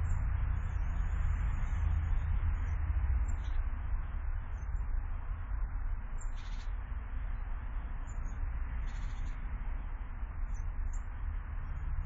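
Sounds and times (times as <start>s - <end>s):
low rumble and hiss: 0.0s - 12.0s
small birds chirping: 0.0s - 12.0s.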